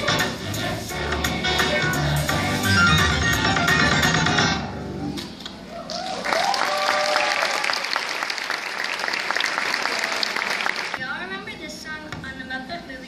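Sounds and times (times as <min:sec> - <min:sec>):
music: 0:00.0 - 0:05.3
audience clapping: 0:05.8 - 0:11.0.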